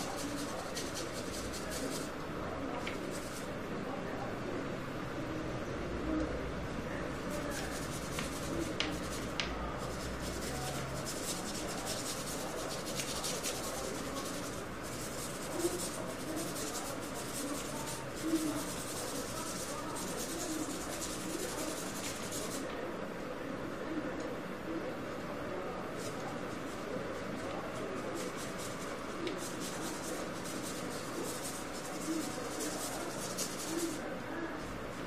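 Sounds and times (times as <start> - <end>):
paintbrush scrubbing on paper: 0.0 - 2.2, 2.9 - 3.5, 7.3 - 22.7, 26.0 - 34.1.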